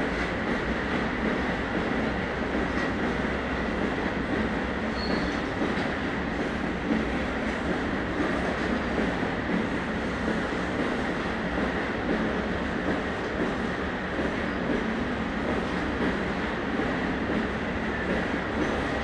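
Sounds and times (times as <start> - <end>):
freight train wheels rumbling on rail: 0.0 - 19.0.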